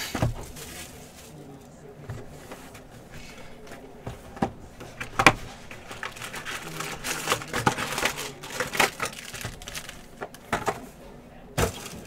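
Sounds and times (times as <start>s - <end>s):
foil packs crinkling: 0.2s - 1.6s, 4.9s - 10.4s, 11.6s - 12.0s.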